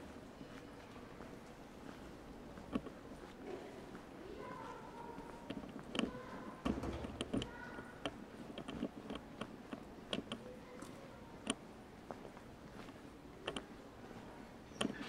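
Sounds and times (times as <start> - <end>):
footsteps on hard pavement: 0.1 - 13.1.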